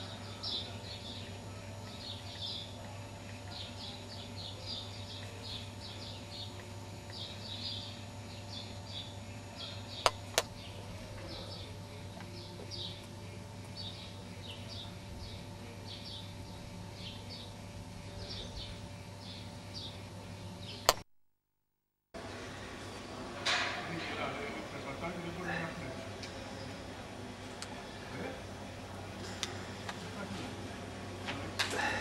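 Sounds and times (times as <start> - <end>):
small birds chirping: 0.0 - 21.0
steady low hum: 0.0 - 21.0, 22.2 - 32.0
sharp clicks: 20.8 - 21.1.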